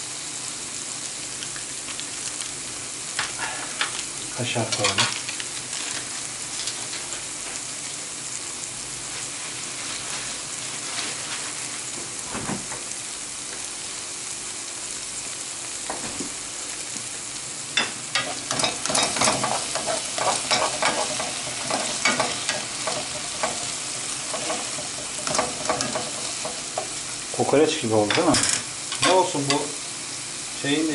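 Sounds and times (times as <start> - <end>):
sausage sizzling in a pan: 0.0 - 30.9
utensil scraping in a pan: 17.8 - 29.8.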